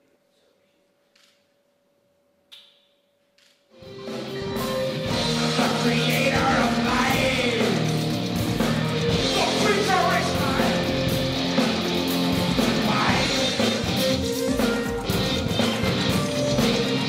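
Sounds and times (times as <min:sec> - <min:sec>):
live heavy rock band: 0:03.8 - 0:17.0.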